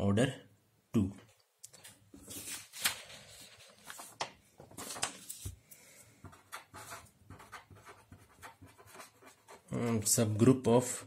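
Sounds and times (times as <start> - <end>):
paper rustling and sliding: 2.1 - 5.7
pen scratching on paper: 6.2 - 10.2.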